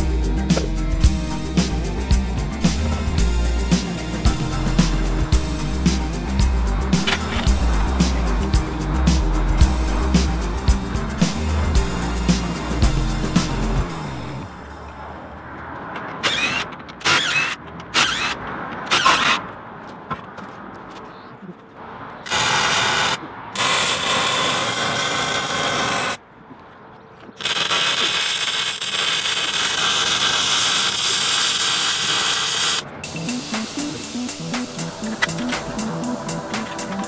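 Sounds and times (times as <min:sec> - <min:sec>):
welder arc crackling: 0:22.3 - 0:26.2, 0:27.4 - 0:32.9.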